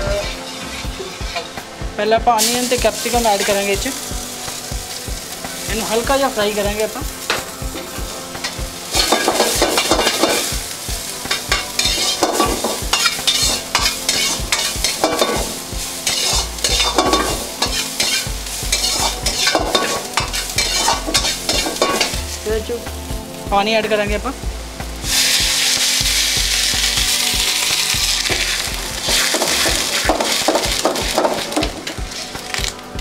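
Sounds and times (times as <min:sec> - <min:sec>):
metal ladle scraping a pan: 0:00.0 - 0:01.6, 0:07.3 - 0:10.5, 0:11.3 - 0:22.2, 0:27.8 - 0:32.7
vegetables sizzling in a wok: 0:00.0 - 0:33.0.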